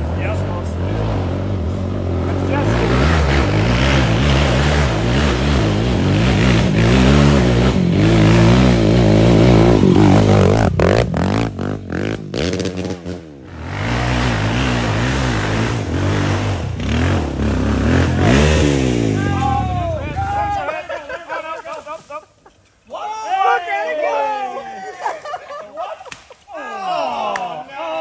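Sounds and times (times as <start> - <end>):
quad engines revving: 0.0 - 20.6.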